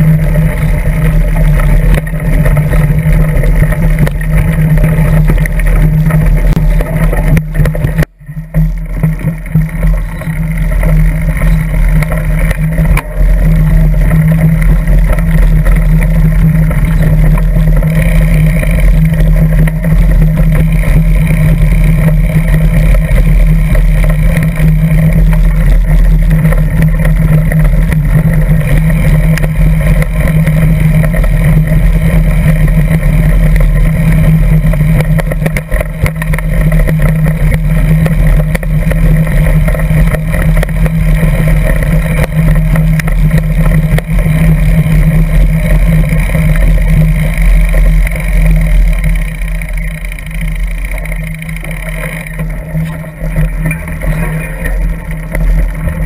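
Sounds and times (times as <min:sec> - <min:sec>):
wind and bike frame rumble: 0:00.0 - 0:56.0.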